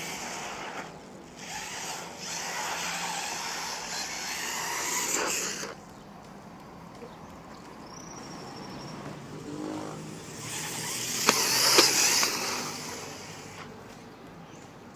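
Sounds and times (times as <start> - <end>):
toy car motor whirr: 0.0 - 5.8, 9.5 - 13.8
sharp clicks: 11.2 - 12.8.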